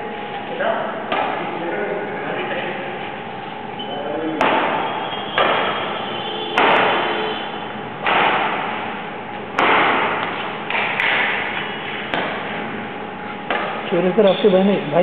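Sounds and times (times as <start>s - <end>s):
racket hitting shuttlecock: 4.4s - 5.9s, 6.6s - 7.2s, 8.0s - 8.9s, 9.5s - 12.6s, 13.5s - 13.9s.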